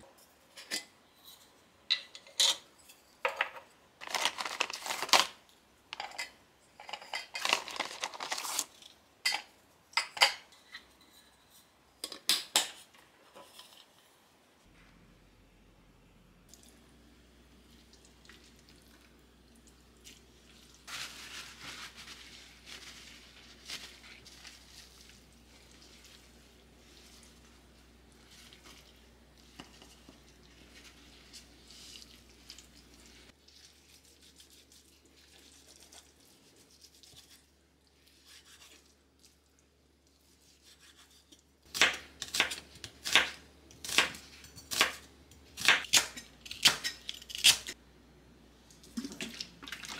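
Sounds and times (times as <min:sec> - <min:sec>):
soft rubbing and handling noises: 0:20.1 - 0:39.4.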